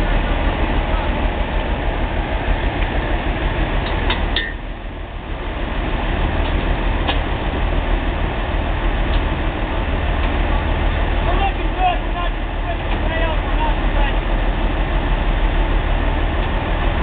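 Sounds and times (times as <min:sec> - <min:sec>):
heavy engine running: 0:00.0 - 0:17.0.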